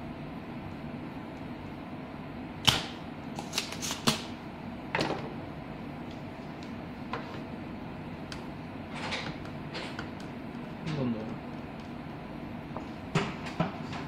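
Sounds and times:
desoldering pump snapping: 2.6 - 4.3.

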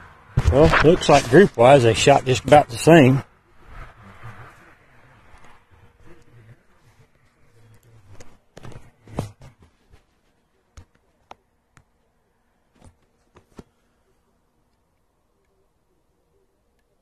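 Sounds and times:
faint sharp clicks and taps: 7.1 - 12.1.

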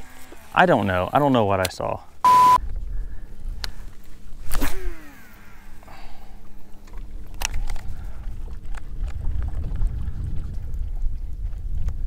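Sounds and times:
faint steady hum: 0.0 - 9.3
wind and water rumble: 0.0 - 12.0.

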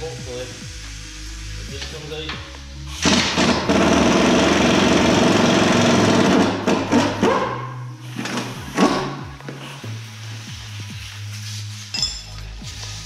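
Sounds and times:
pneumatic impact wrench hammering: 3.0 - 9.3
metallic clinks: 11.9 - 12.4.

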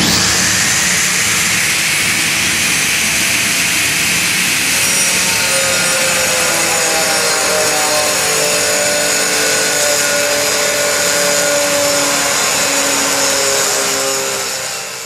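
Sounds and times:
angle grinder cutting tile: 0.0 - 15.0.

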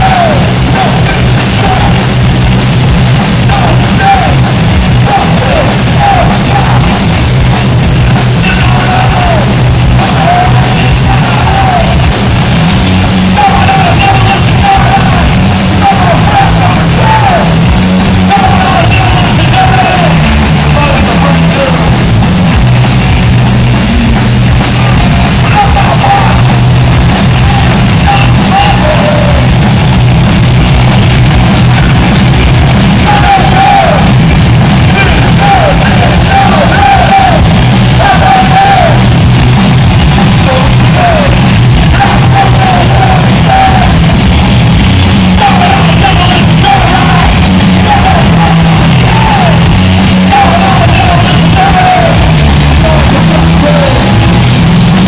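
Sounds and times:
person yelling vocals: 0.0 - 2.0, 3.4 - 4.4, 5.0 - 7.0, 8.4 - 12.1, 13.3 - 17.6, 18.2 - 21.9, 24.8 - 26.5, 27.3 - 29.5, 33.0 - 34.1, 34.9 - 39.0, 40.4 - 44.0, 45.4 - 54.2
bass guitar: 0.0 - 55.0
distorted electric guitars: 0.0 - 55.0
drums: 0.0 - 55.0.

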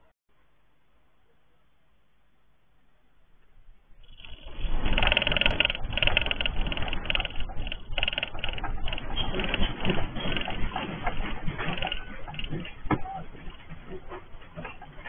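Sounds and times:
earthquake rumble with rattling: 3.6 - 15.0.

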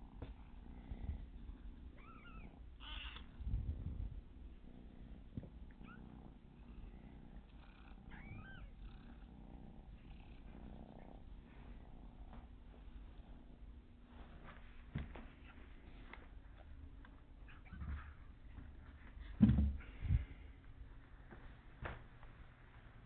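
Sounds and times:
cat purring: 0.0 - 20.6
cat chirping: 2.0 - 3.4, 5.8 - 6.1, 8.1 - 8.8.

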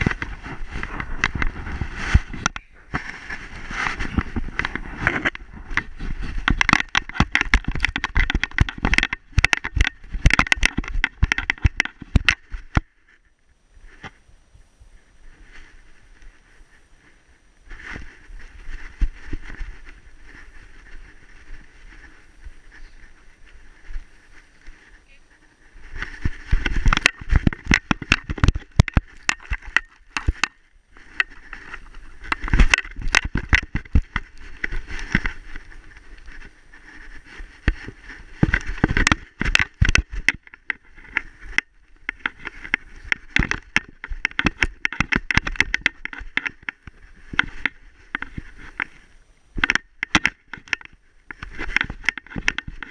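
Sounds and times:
paws crunching in snow: 0.0 - 6.6, 13.8 - 49.5, 51.0 - 52.9
camera jostling on harness: 0.0 - 13.2, 15.3 - 52.9.

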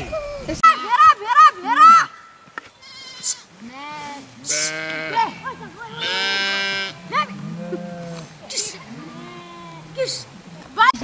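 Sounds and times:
sheep bleating: 2.8 - 10.0.

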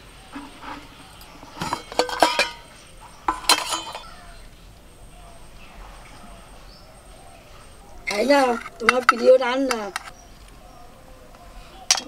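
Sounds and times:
metal lid clinking: 0.3 - 4.4, 8.0 - 10.2.

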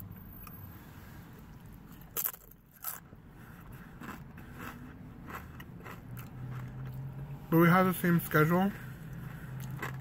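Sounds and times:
chewing crunches: 1.9 - 7.0, 9.1 - 10.0
chip crunching when bitten: 2.0 - 3.0, 4.0 - 6.9.

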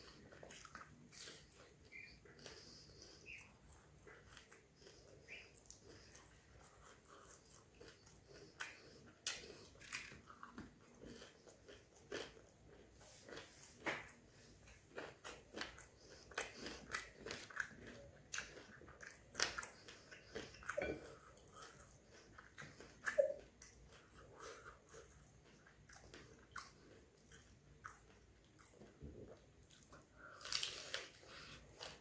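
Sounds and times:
soft chewing mouth sounds: 0.0 - 32.0.

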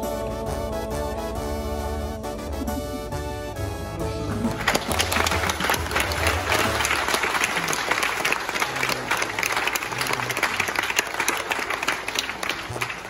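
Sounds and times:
congregation applauding: 4.2 - 13.0.

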